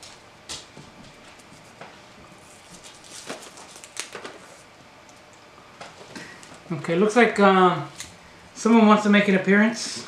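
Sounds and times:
plastic candy wrapper crinkling: 0:02.8 - 0:04.6.

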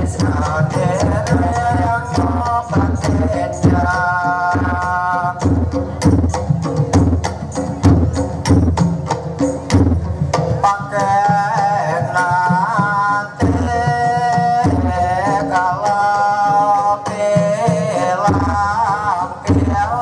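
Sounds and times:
hand drums beating: 0:00.0 - 0:20.0
person singing wavering melody: 0:10.6 - 0:20.0.

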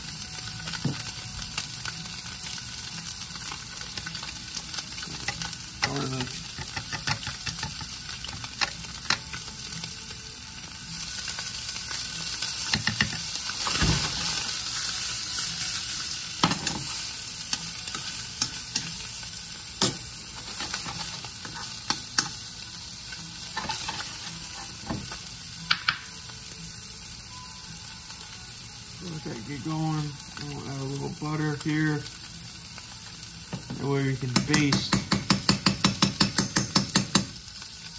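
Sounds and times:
fish fillets sizzling in a pan: 0:00.0 - 0:37.9
spatula clicking and scraping pan: 0:04.7 - 0:09.3, 0:16.4 - 0:19.0, 0:19.8 - 0:22.4, 0:23.5 - 0:24.8.

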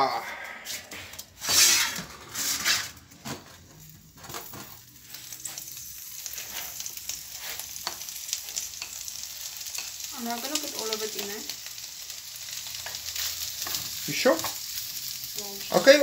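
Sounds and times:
peppers sizzling in frying pan: 0:00.0 - 0:16.0.

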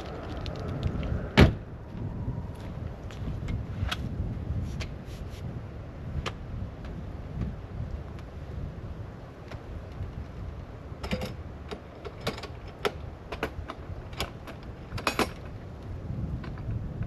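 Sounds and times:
sharp clicks and knocks of gear: 0:00.0 - 0:01.3, 0:09.4 - 0:17.0
low rumble: 0:00.0 - 0:04.7.

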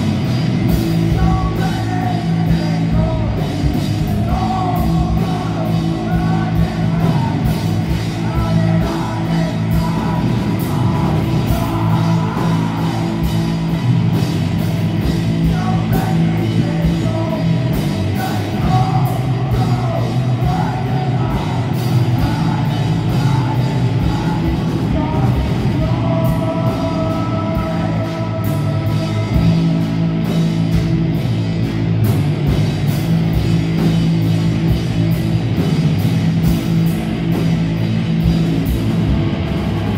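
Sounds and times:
sung vocals: 0:00.0 - 0:31.0
live rock band playing: 0:00.0 - 0:39.9.

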